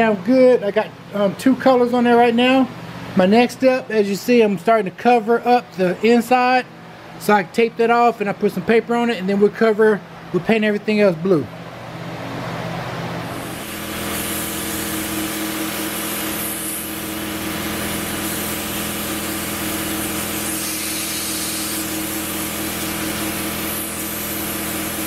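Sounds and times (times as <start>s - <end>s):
machine hum: 0.0s - 25.0s
paint spray gun hissing: 13.3s - 25.0s.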